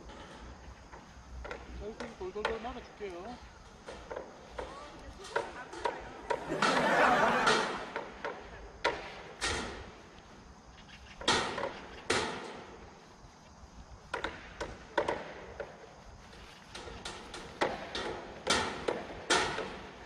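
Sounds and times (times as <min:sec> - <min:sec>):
hammer strikes echoing: 0:05.7 - 0:08.1.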